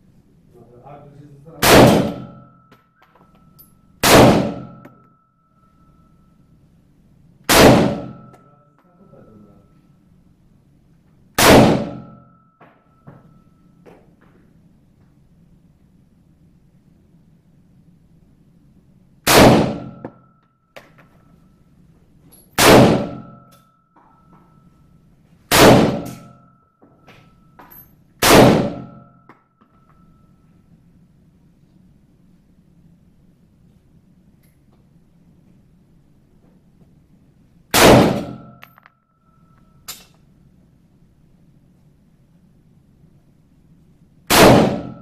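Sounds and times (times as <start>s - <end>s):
faint high ringing tone: 0.3s - 7.4s, 8.0s - 11.2s, 11.8s - 19.2s, 19.8s - 34.7s, 38.2s - 44.2s
handgun shots indoors: 1.6s - 5.3s, 7.4s - 8.5s, 11.3s - 13.4s, 19.2s - 21.2s, 22.3s - 24.3s, 25.5s - 30.0s, 37.7s - 40.4s, 44.2s - 45.0s.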